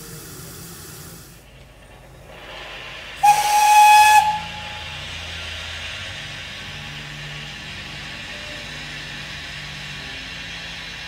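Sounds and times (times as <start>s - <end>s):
steam hissing: 0.0s - 11.0s
steam locomotive whistle: 3.2s - 5.1s.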